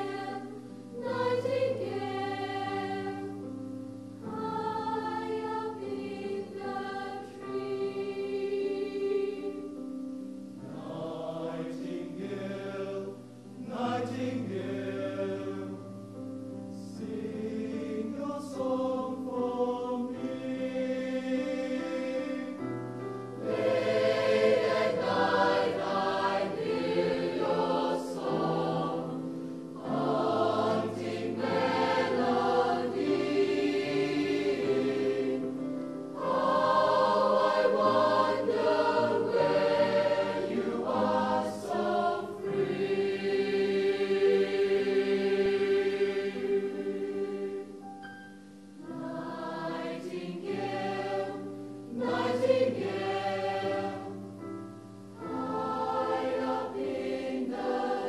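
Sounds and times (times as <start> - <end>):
mixed choir singing: 0.0 - 48.0, 48.8 - 58.0
digital piano: 20.1 - 58.0.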